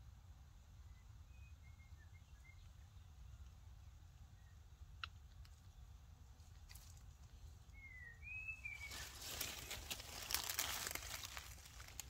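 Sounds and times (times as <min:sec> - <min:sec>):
rustling and crinkling: 0:06.4 - 0:07.5, 0:08.8 - 0:12.0.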